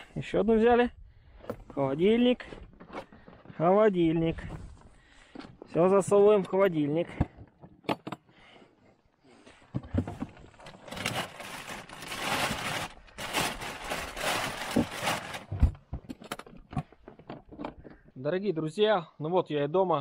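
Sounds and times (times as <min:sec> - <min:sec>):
scraping and rustling: 0:10.0 - 0:15.8.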